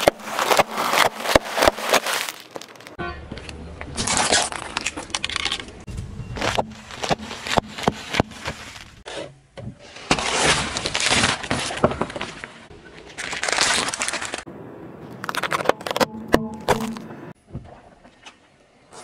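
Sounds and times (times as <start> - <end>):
crisp bags bursting under tyre: 0.0 - 3.0, 10.1 - 12.4, 13.2 - 14.5
fruit crunching and splitting: 0.0 - 3.0, 6.4 - 9.1, 15.1 - 17.1.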